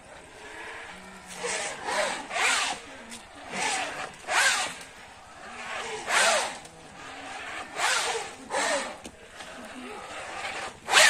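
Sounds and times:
rope rasping through pulley: 0.0 - 11.0.

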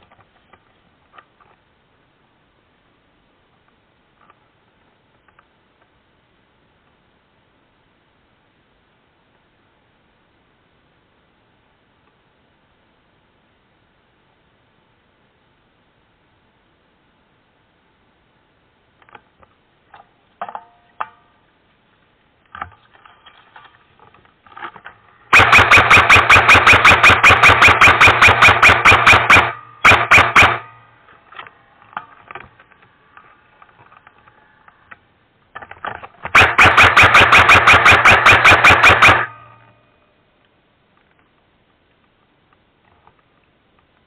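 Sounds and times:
airsoft gun rattling bursts: 25.3 - 30.8, 35.8 - 39.4.

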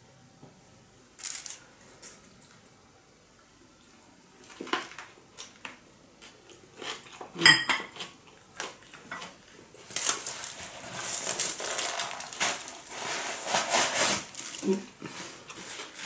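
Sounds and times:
chewing food: 3.4 - 10.0
tableware clink: 7.4 - 8.0
crinkly foil rustle: 8.0 - 16.0.

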